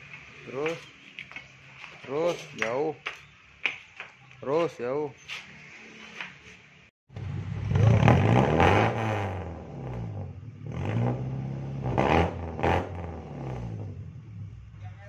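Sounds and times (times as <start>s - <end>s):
car engine revving: 7.1s - 14.8s.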